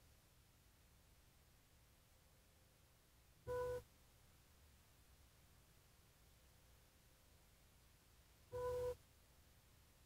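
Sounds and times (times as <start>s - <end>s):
background hiss: 0.0s - 10.0s
short beep: 8.6s - 9.0s.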